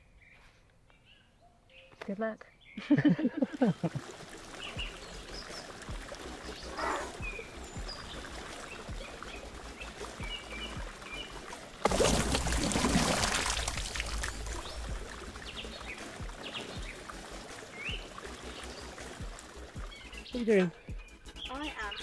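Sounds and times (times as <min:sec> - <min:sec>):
birds chirping faintly: 0:00.0 - 0:12.2, 0:13.0 - 0:22.0
fish splashing in water: 0:03.6 - 0:20.2
loud splash: 0:11.1 - 0:17.9.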